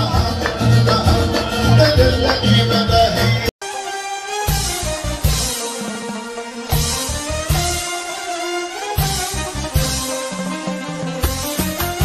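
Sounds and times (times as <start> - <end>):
music with a beat: 0.0 - 3.5, 4.5 - 5.9, 6.6 - 8.0, 9.0 - 12.0.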